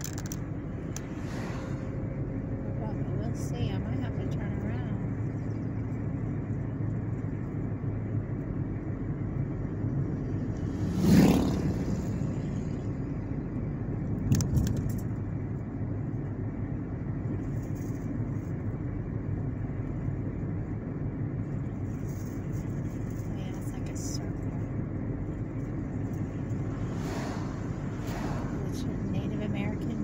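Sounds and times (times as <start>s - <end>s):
car cabin engine and tyre noise: 0.0s - 30.0s
oncoming vehicle passing: 0.2s - 5.5s, 10.3s - 13.2s, 25.4s - 30.0s.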